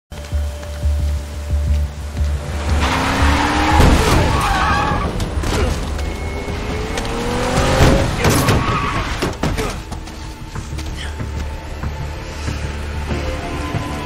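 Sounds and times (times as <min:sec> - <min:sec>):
heavy rain: 0:00.1 - 0:14.0
low pulsing film score: 0:00.1 - 0:14.0
car engine revving: 0:02.2 - 0:09.4
tyres squealing: 0:02.7 - 0:10.2.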